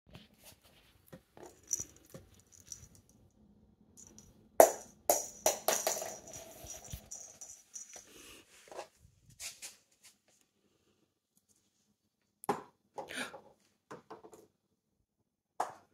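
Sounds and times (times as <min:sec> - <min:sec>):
cat toy ball rattling on wooden floor: 0:01.4 - 0:03.1, 0:04.0 - 0:08.1
thin jingle ringing: 0:01.5 - 0:03.1, 0:04.0 - 0:08.2.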